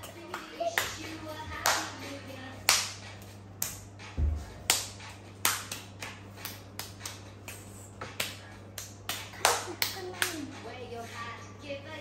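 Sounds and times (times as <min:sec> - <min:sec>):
hand claps: 0:00.0 - 0:10.5
steady low hum: 0:00.0 - 0:12.0.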